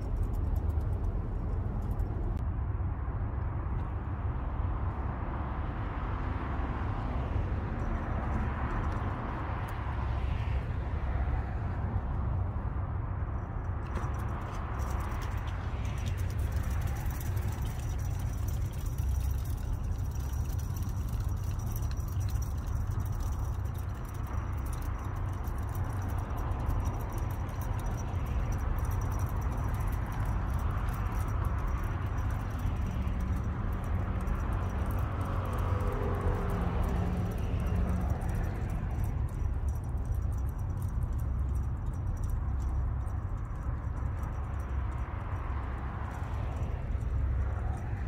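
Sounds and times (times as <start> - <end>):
low outdoor rumble: 0.0 - 48.0
faint light rattling: 13.3 - 48.0.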